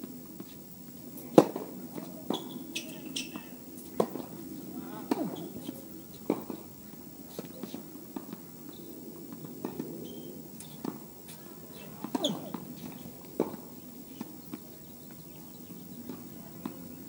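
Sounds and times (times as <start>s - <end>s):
tennis balls bouncing: 1.3s - 9.9s, 10.6s - 17.0s
racket hitting ball: 5.0s - 6.6s, 11.8s - 13.6s.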